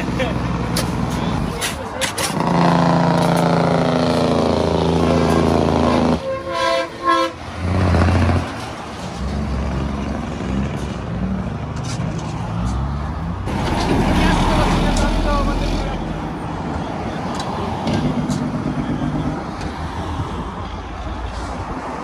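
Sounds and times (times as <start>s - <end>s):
truck engine pulling hard: 2.1s - 6.3s, 7.4s - 12.2s, 13.2s - 16.8s
horn blasts: 2.4s - 8.0s.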